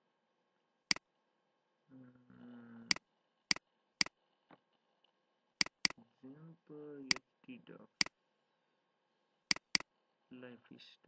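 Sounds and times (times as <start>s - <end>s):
computer mouse button clicks: 5.6s - 6.0s, 9.5s - 9.8s.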